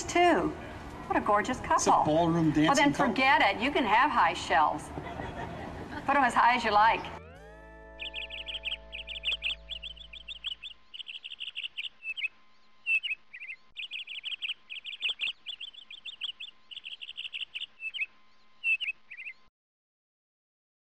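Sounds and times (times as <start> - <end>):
birds chirping and trilling: 6.1 - 19.5
held music chord: 7.0 - 12.5.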